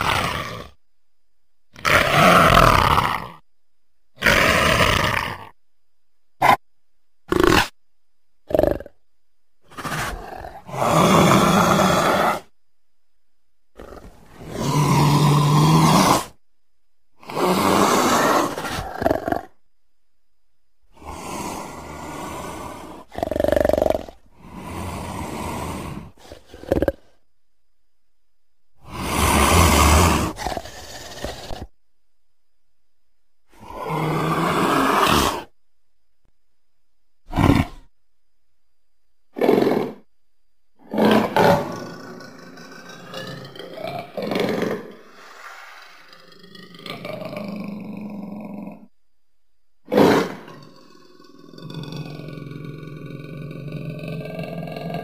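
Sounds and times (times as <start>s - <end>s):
leopard roaring: 0.0s - 0.8s, 1.8s - 3.4s, 4.2s - 5.6s, 9.6s - 12.5s, 13.8s - 16.4s, 17.2s - 19.6s, 20.9s - 27.2s, 28.8s - 31.7s, 33.5s - 35.6s, 37.3s - 37.9s, 39.3s - 40.1s, 40.8s - 48.9s, 49.8s - 55.0s
leopard calling: 9.6s - 12.5s, 28.8s - 31.6s.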